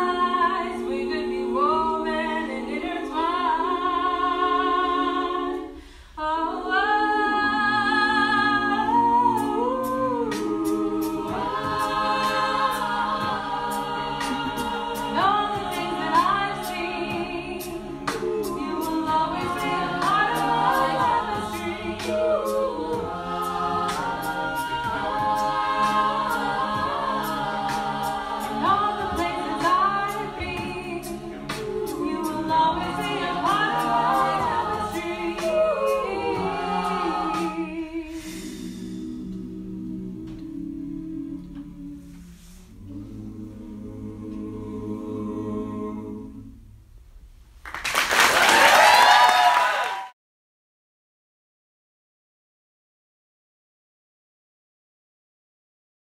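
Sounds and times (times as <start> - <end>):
vocal group singing in harmony: 0.0 - 46.8
vocal percussion beat: 9.2 - 39.6.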